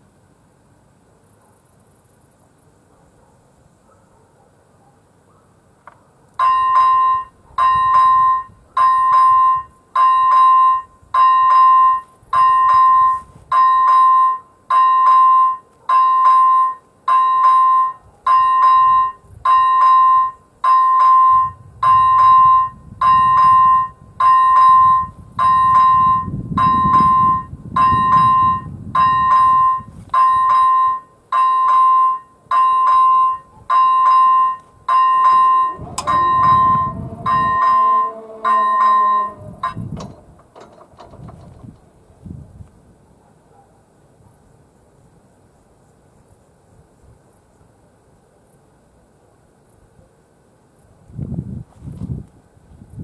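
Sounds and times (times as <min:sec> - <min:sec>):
level crossing bell dinging: 0:06.4 - 0:40.2
low rumble: 0:35.3 - 0:42.2.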